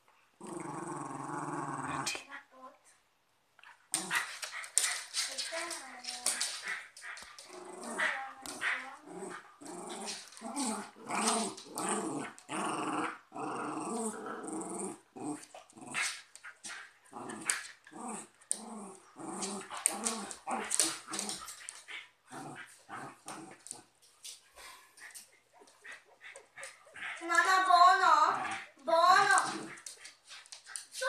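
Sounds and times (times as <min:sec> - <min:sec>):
dogs growling: 0:00.4 - 0:02.3, 0:03.9 - 0:23.9, 0:28.2 - 0:30.2.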